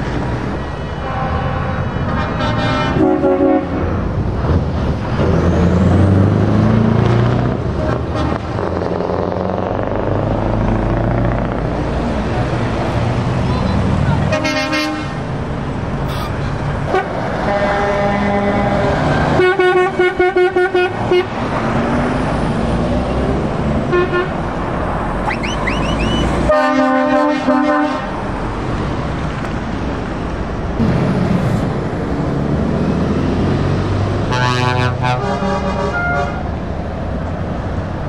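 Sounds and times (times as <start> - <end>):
diesel engines and tyres: 0.0 - 38.0
lorry air horns: 1.0 - 3.9, 14.3 - 15.2, 26.5 - 28.1, 34.3 - 36.5.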